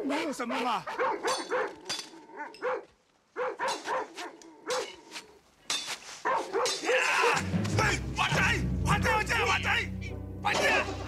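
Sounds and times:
dog barking: 0:00.1 - 0:05.0, 0:06.2 - 0:07.4.

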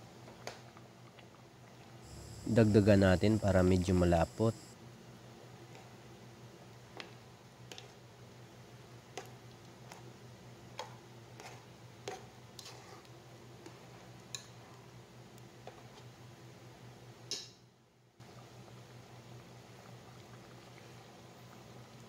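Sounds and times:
low steady hum: 0:01.1 - 0:04.8.

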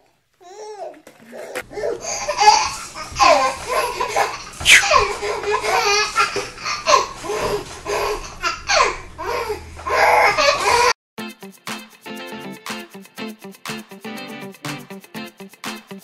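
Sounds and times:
baby laughing and squealing: 0:00.4 - 0:11.0.

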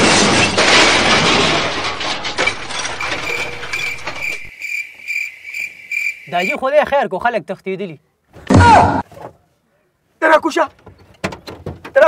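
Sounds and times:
cricket chirping: 0:02.8 - 0:06.7.

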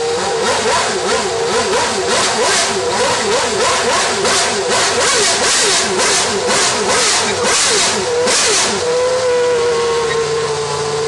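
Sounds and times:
racing car engine revving: 0:00.0 - 0:11.0.

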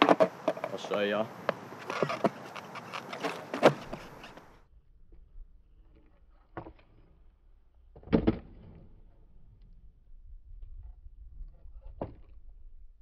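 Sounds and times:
skateboard thud: 0:00.0 - 0:00.9, 0:01.5 - 0:04.5, 0:08.0 - 0:08.9
skateboard knock: 0:00.0 - 0:04.4
skateboard slapping on concrete: 0:00.0 - 0:04.5
skateboard wheels rolling: 0:00.0 - 0:04.6.

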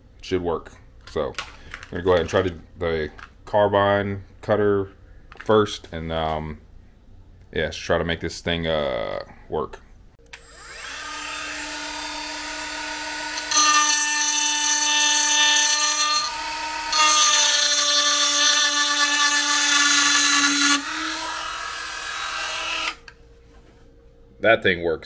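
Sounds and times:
rotary tool whining: 0:10.3 - 0:23.1
cutter bit grinding metal: 0:10.4 - 0:23.1.

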